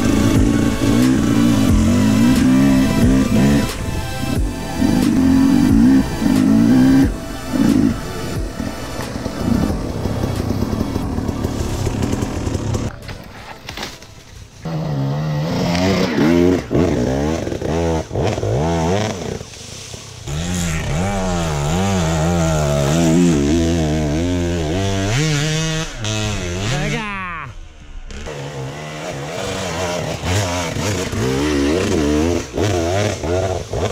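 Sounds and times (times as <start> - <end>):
dirt bike engine revving: 0.0 - 13.9, 14.6 - 33.9.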